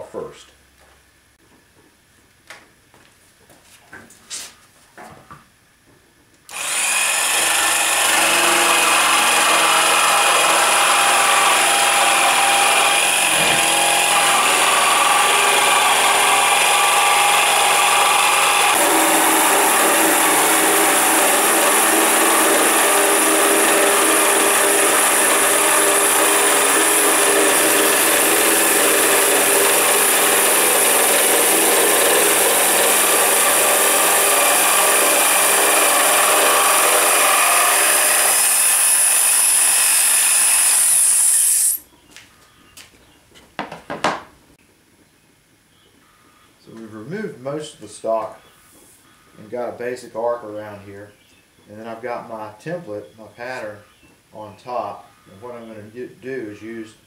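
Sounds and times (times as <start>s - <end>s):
jigsaw cutting wood: 6.5s - 41.8s.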